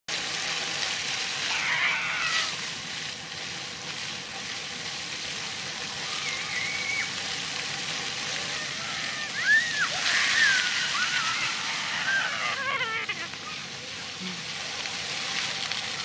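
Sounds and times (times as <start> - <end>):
fountain jets hissing on pavement: 0.1 - 16.0
children calling out: 1.4 - 2.6, 6.0 - 7.2, 8.3 - 13.8.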